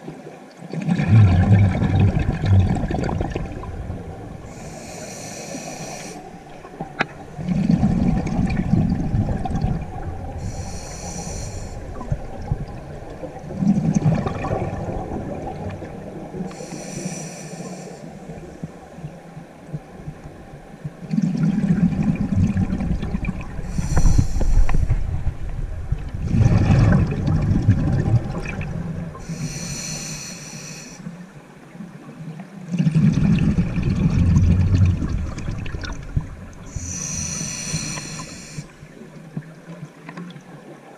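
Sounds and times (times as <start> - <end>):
exhaust bubbles rumbling underwater: 0.0 - 40.9
regulator inhale hiss: 4.5 - 6.5, 10.4 - 12.0, 16.5 - 18.7, 23.6 - 25.0, 29.1 - 31.2, 36.7 - 38.9.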